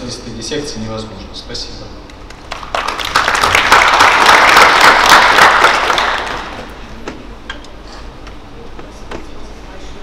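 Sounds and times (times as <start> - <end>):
audience applauding: 2.3 - 6.7.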